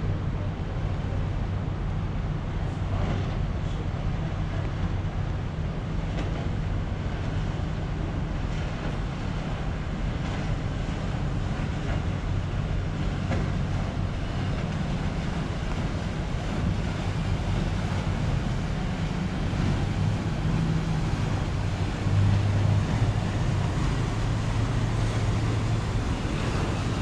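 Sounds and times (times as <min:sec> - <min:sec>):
ship engines droning: 0:00.0 - 0:27.0.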